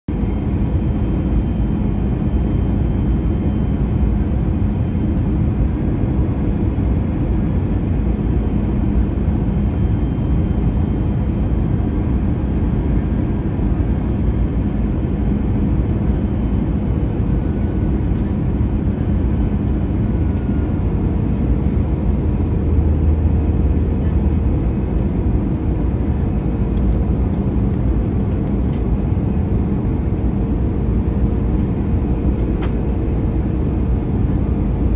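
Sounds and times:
airliner engines and rushing air: 0.1 - 34.9
faint constant hum: 0.1 - 34.9.

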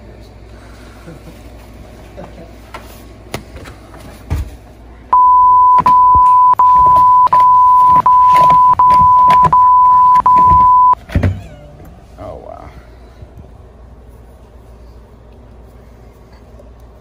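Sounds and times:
high pure bleep tone: 5.2 - 11.0.

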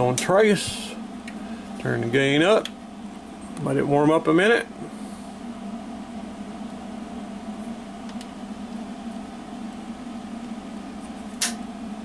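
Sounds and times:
speaker hum and hiss: 0.0 - 12.0.

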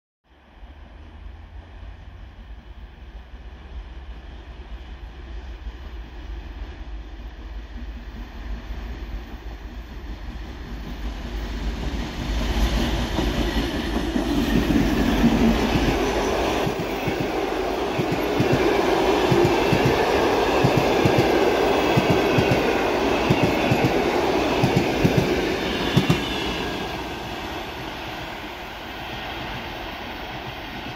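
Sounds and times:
train wheels clacking: 10.5 - 27.0.

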